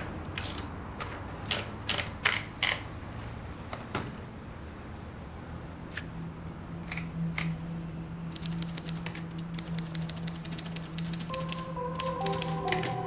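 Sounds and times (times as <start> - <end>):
typewriter keystrokes: 8.4 - 13.0.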